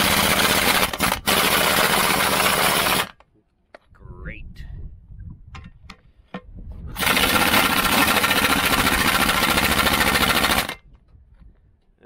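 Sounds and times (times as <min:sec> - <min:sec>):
pneumatic impact wrench hammering: 0:00.0 - 0:03.2, 0:07.0 - 0:10.8.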